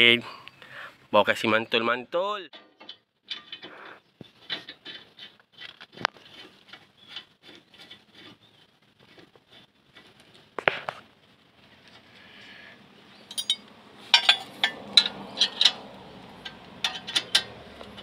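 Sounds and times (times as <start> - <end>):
metal clunk: 2.5 - 5.2, 13.3 - 18.0
brake pads scraping a disc: 3.4 - 12.6.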